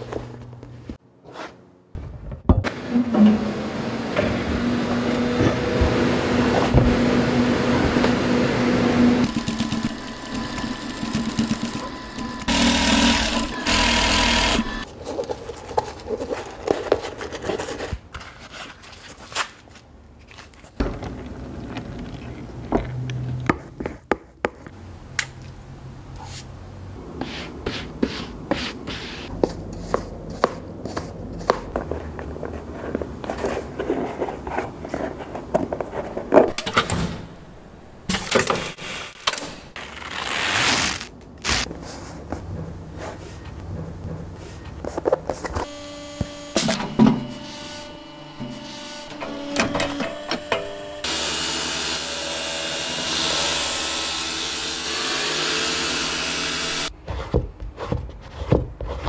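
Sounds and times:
low machine hum: 3.0 - 14.8, 45.7 - 51.3
industrial sewing machine stitching: 9.0 - 14.8.

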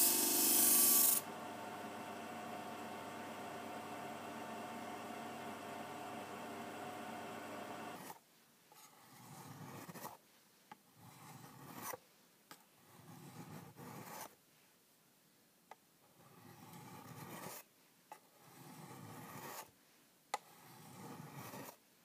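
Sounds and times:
disc sander motor hum: 0.0 - 8.0.

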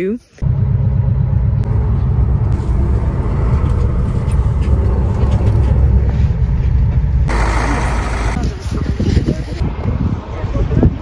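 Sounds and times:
bus engine and road rumble: 0.0 - 11.0
loud hiss: 7.3 - 8.4.

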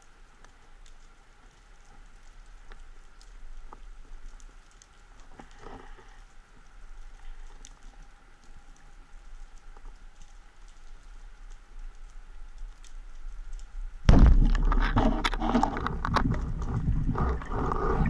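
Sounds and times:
underwater clicks crackling: 0.2 - 18.0
speargun firing bang: 14.1 - 14.8
dense clatter: 14.1 - 18.0.

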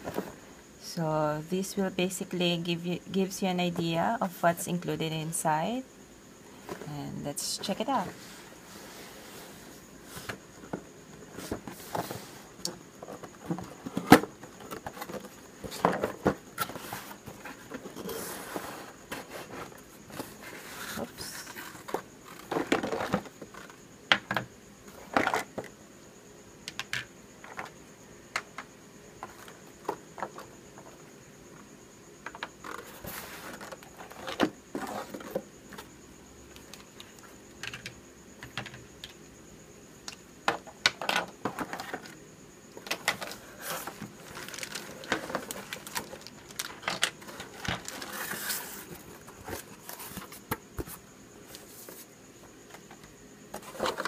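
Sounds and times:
cardboard and plastic wrap rustling: 8.0 - 23.8, 32.6 - 35.9, 42.8 - 51.0, 53.5 - 54.0.

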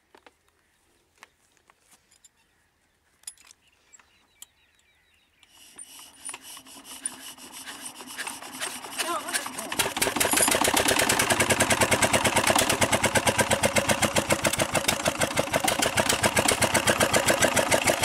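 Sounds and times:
hands clicking and scraping on engine: 5.4 - 18.0
diesel engine turning over and starting: 5.6 - 18.0.

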